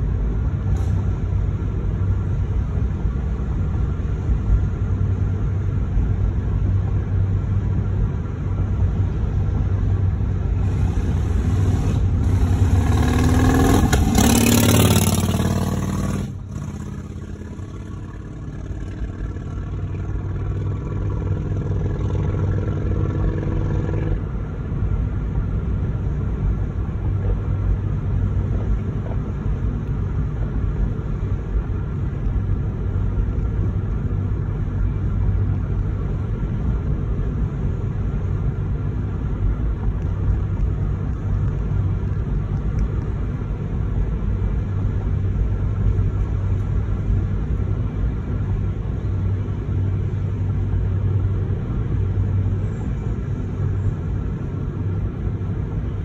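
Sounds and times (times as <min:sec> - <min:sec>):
low driving rumble: 0:00.0 - 0:56.0
car engine revving: 0:10.5 - 0:24.4.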